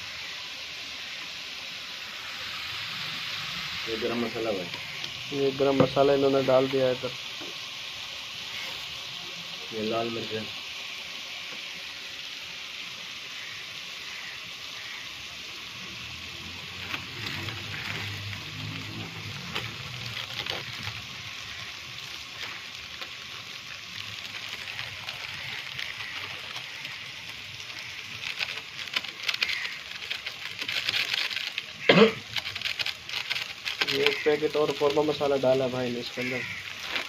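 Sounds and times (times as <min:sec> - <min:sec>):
meat sizzling in a pan: 0:00.0 - 0:37.0
plastic packets crinkling and tearing: 0:02.4 - 0:07.0, 0:15.8 - 0:37.0.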